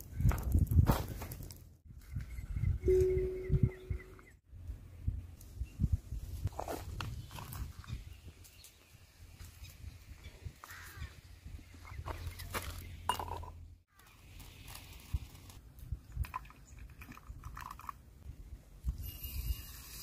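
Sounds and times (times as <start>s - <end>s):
glass mug clinking on stone: 13.1s - 13.6s.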